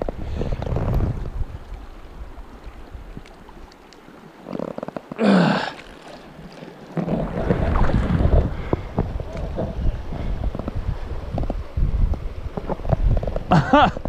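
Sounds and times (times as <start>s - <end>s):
wind buffeting microphone: 0.0s - 3.3s, 7.0s - 14.0s
flowing river: 0.0s - 14.0s.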